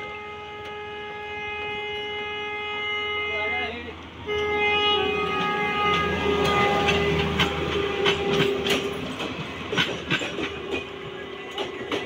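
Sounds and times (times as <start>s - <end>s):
wheels clicking over rail joints: 5.1s - 12.0s.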